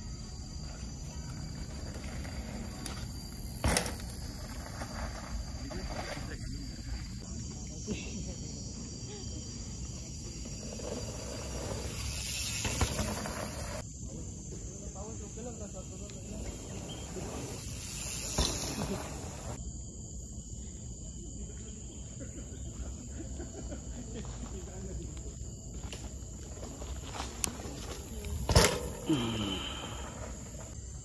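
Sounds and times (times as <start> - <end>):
insects droning: 0.0 - 31.0
hiss: 11.1 - 13.8, 16.8 - 19.6.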